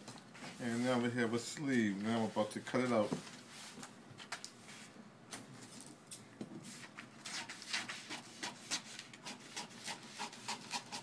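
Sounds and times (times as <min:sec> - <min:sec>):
scissors cutting paper: 0:07.2 - 0:11.0.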